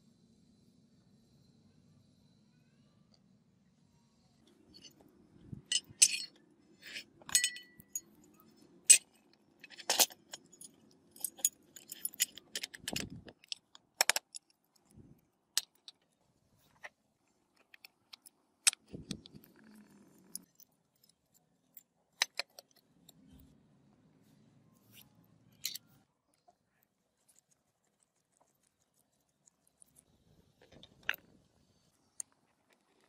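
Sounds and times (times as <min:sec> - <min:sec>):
metal motor parts clinking: 0:04.7 - 0:08.3, 0:08.9 - 0:14.9, 0:25.5 - 0:25.9.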